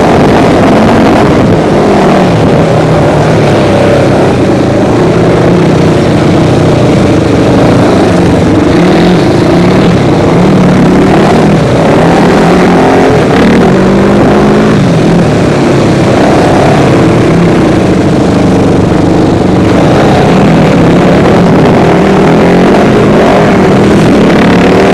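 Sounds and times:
off-road vehicle engine revving: 0.0 - 24.9.

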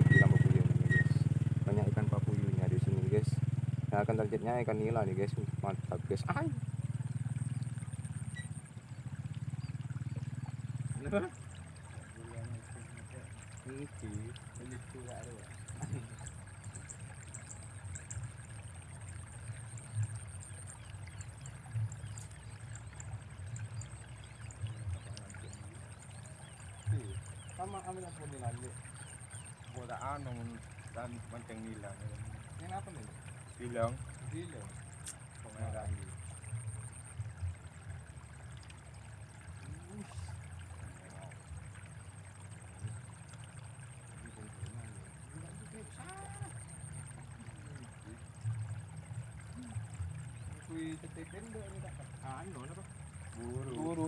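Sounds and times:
faint men's voices talking: 0.0 - 6.8, 10.0 - 16.3, 24.7 - 36.4, 39.5 - 41.7, 44.1 - 54.0
faint insect trill: 0.0 - 54.0.

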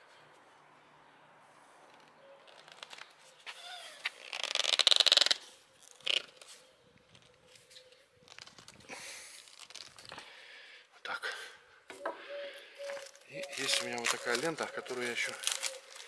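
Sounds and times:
plastic hoses scraping and rubbing: 1.9 - 10.2.

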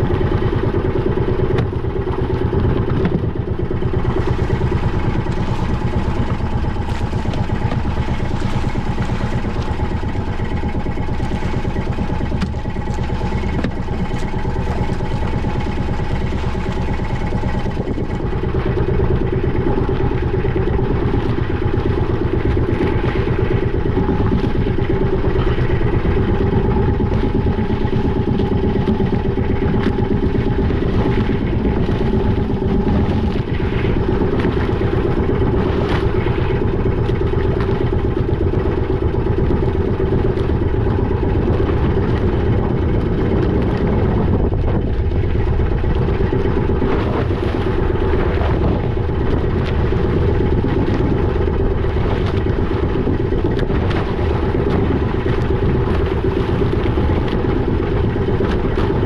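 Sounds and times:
boat engine running: 0.0 - 59.0.

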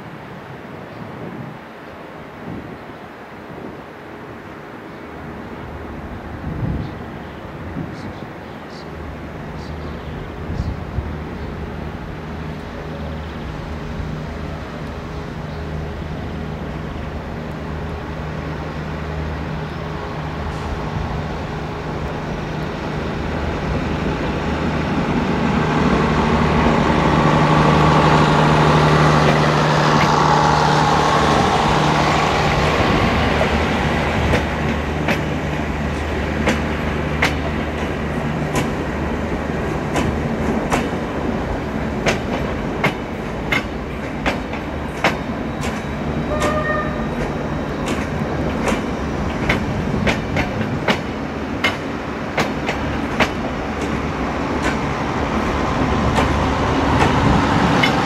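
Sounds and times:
electric locomotive hum: 0.0 - 58.0
train wheels clicking on rail joints: 28.6 - 58.0.

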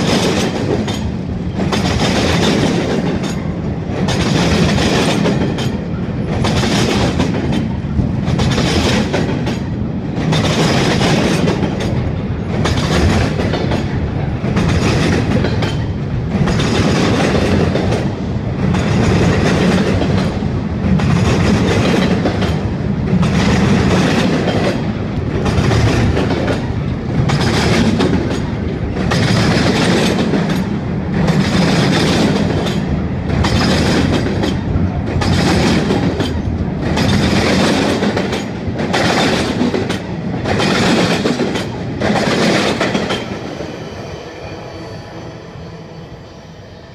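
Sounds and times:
wheels clickety-clack on rail: 0.0 - 43.8
freight train rolling past: 0.0 - 46.9.

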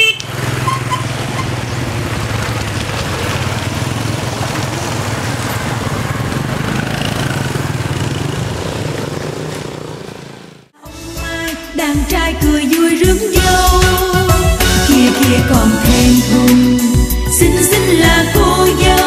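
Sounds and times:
vehicle engine running: 0.0 - 10.7
outdoor street noise: 0.0 - 10.8, 12.0 - 19.0.

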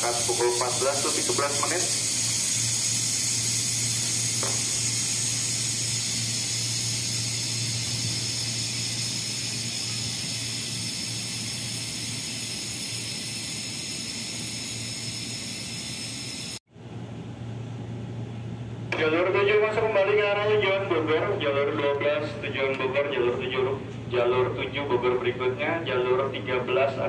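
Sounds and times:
electric train hiss and hum: 0.0 - 16.6.

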